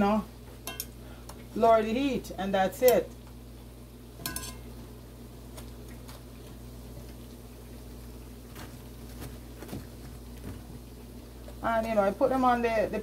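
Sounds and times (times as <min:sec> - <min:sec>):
dumplings frying in oil: 0:00.0 - 0:13.0
fork clinking against pan: 0:00.7 - 0:01.0, 0:04.2 - 0:04.6.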